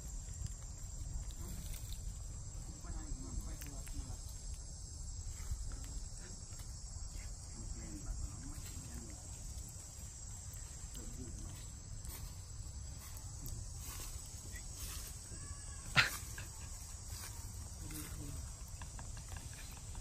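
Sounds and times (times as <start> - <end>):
insect chorus drone: 0.0 - 20.0.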